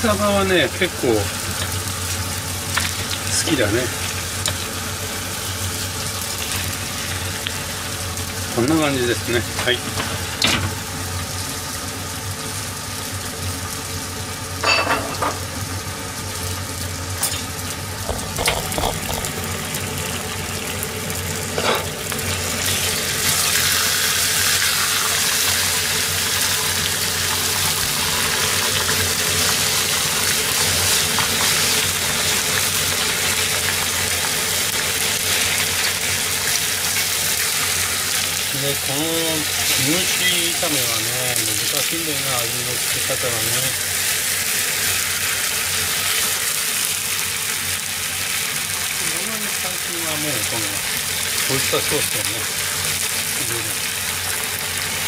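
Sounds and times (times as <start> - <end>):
meat frying with steady sizzle: 0.0 - 55.0
kitchenware knocks: 18.1 - 19.4.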